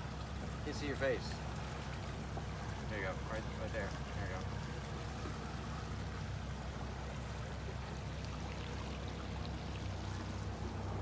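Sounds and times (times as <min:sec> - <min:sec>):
outboard motor humming: 0:00.0 - 0:11.0
water sloshing along hull: 0:00.0 - 0:11.0.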